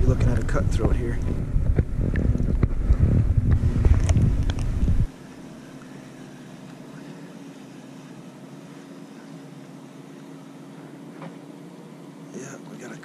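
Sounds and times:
wind buffeting microphone: 0.0 - 5.1
faint steady hum: 0.0 - 13.0.

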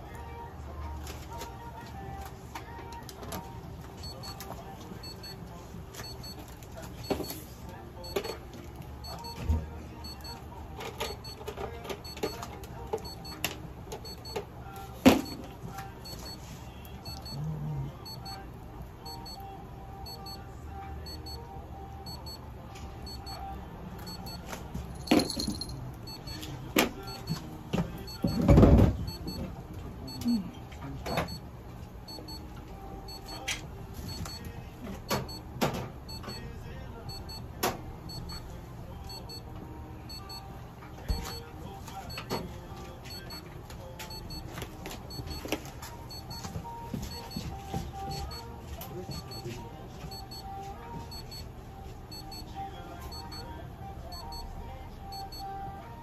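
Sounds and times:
faint short beep: 30.1 - 30.4.

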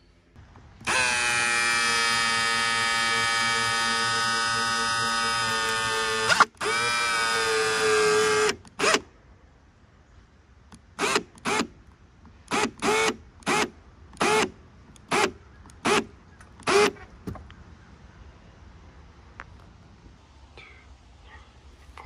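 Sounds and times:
cordless drill driving a screw: 0.8 - 9.0, 11.0 - 11.7, 12.5 - 17.0.

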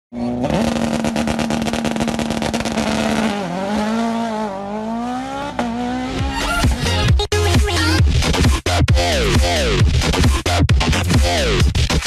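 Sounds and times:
race car engine revving: 0.1 - 7.1.

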